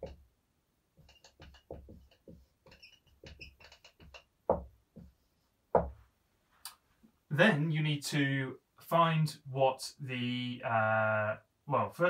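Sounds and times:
chalk squeaks: 1.0s - 4.2s
chalk tapping and scratching on board: 1.0s - 5.9s
knock on board: 5.8s - 6.0s.

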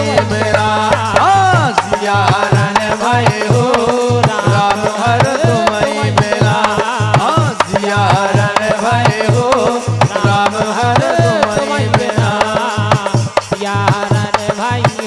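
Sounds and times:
hand drum beat: 0.0s - 15.0s
man singing: 0.0s - 15.0s.

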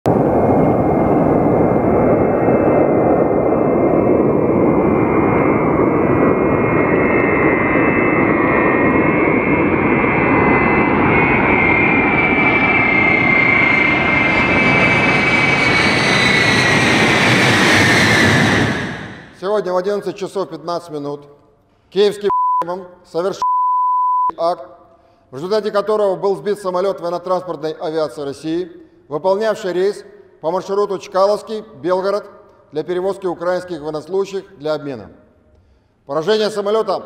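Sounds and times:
jet engines roaring and whining: 0.1s - 19.4s.

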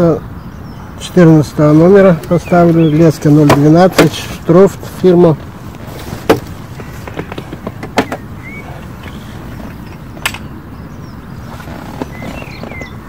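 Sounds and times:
plastic tackle box clicks and knocks: 6.2s - 8.3s.

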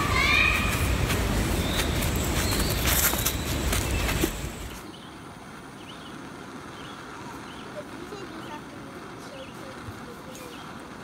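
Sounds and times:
rustling footsteps on leaves: 0.0s - 4.8s.

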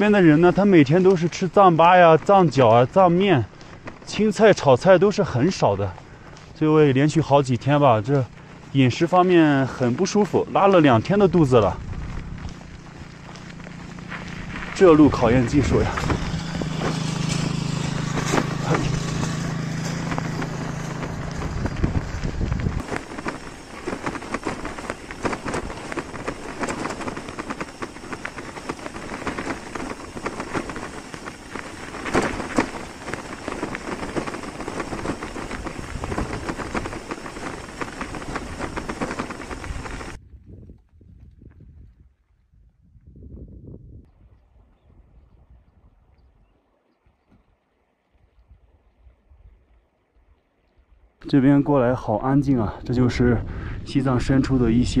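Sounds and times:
bicycle tyres humming on dirt: 0.0s - 43.1s
bicycle knocks and rattles: 15.6s - 40.2s.

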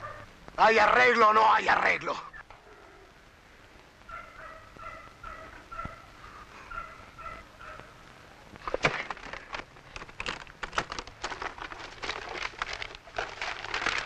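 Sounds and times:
papers rustling and crackling: 8.6s - 14.0s.

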